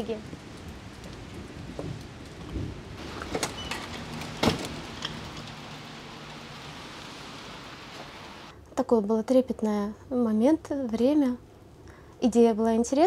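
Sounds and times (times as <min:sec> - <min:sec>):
steady hiss: 0:02.9 - 0:08.5.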